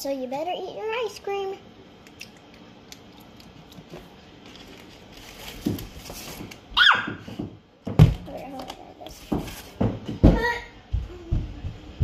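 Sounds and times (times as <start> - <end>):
plastic tub knocking and thumping: 7.2 - 8.3, 9.2 - 10.6.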